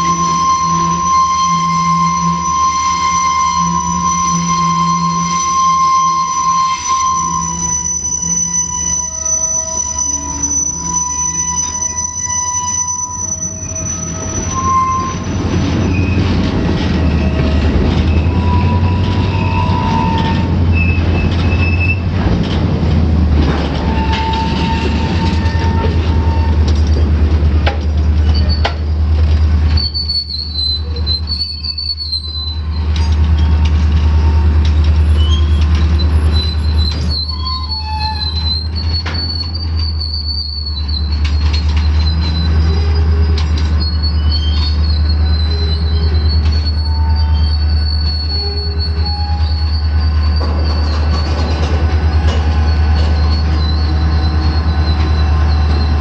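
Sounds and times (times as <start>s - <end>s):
wheel flanges squealing on rail: 0.0s - 56.0s
freight cars rumbling past: 12.5s - 30.6s, 38.3s - 56.0s.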